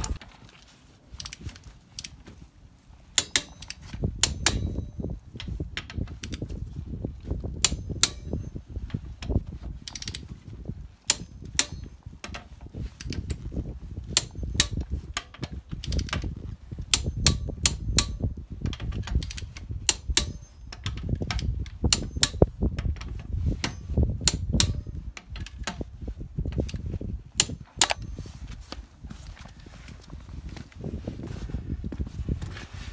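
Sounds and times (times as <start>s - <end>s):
low rumble: 0.0s - 0.3s
socket ratchet clicking: 16.9s - 23.1s, 24.2s - 25.8s.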